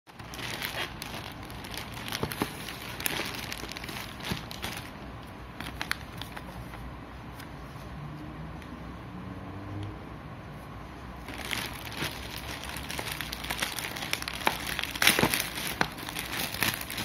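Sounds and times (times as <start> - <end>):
plastic mailer bag crinkling: 0.1 - 5.0, 11.3 - 17.0.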